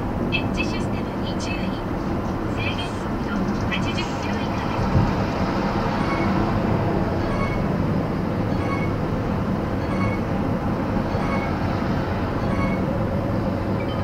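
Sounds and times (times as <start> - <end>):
engine hum: 0.0 - 14.0
road and tyre noise: 0.0 - 14.0.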